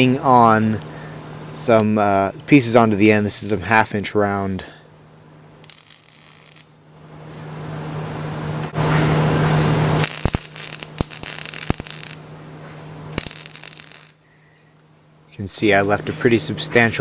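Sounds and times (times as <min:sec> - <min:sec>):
welder arc crackling: 0:05.6 - 0:06.8, 0:10.0 - 0:12.3, 0:13.1 - 0:14.2.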